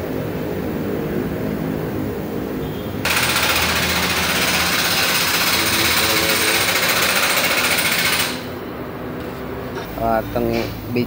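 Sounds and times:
power tool hammering: 0:03.0 - 0:08.6.

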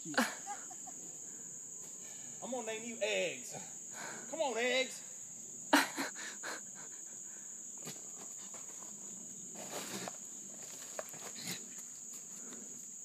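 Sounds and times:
night insects chirring: 0:00.0 - 0:13.0
faint rustles: 0:07.8 - 0:13.0.

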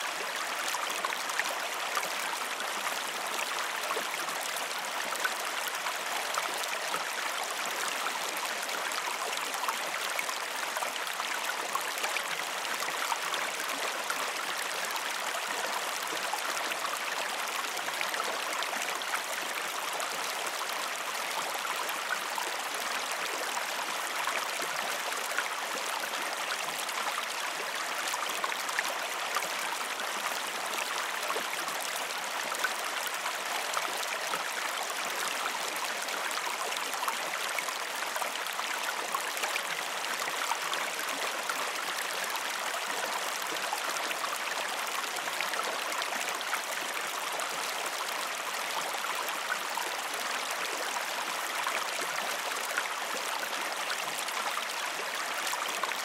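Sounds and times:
creek water flowing: 0:00.0 - 0:56.0.

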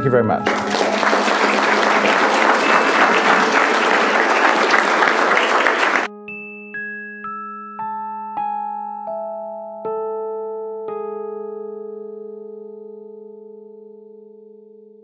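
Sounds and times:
audience applauding: 0:00.4 - 0:06.1.

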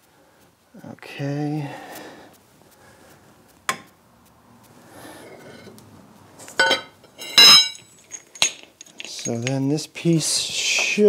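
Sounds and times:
loose metal parts clinking: 0:06.4 - 0:09.8.

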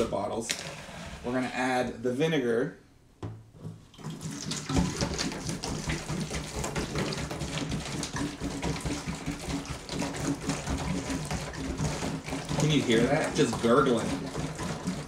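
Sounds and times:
liquid glugging into plastic jug: 0:03.6 - 0:15.0.

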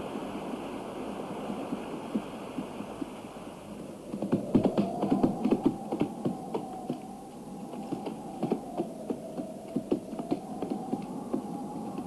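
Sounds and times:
horse hooves clopping: 0:04.1 - 0:07.0.

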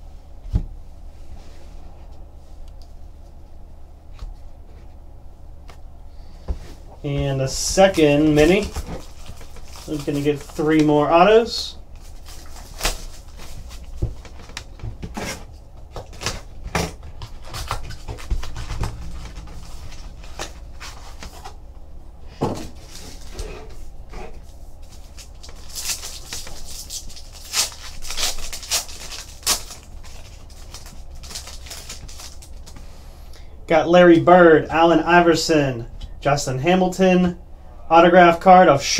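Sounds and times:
plastic wrappers crinkling and tearing: 0:07.8 - 0:21.6, 0:24.8 - 0:32.8.

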